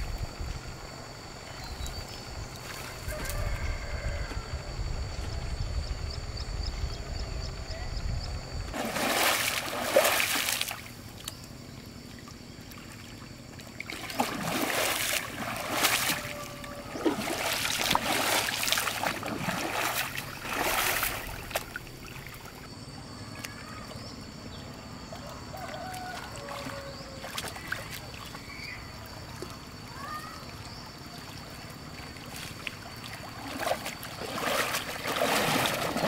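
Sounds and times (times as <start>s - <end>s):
water splashing: 8.7s - 11.3s, 12.0s - 22.7s, 25.6s - 36.0s
wading and swishing water: 8.7s - 24.1s, 24.9s - 36.0s.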